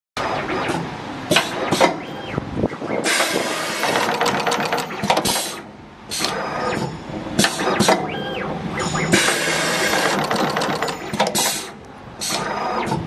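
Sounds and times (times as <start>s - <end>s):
machine whine: 0.2s - 13.0s
wire stripping machine hissing: 3.1s - 6.4s, 9.1s - 12.5s
rapid machine clicks: 3.5s - 5.6s, 9.1s - 11.7s.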